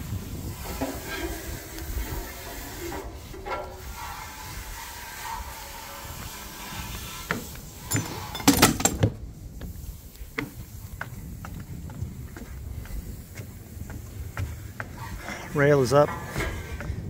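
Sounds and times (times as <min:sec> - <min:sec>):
footsteps climbing deck stairs: 0:07.0 - 0:17.0
knocks and handling noise: 0:07.3 - 0:09.2.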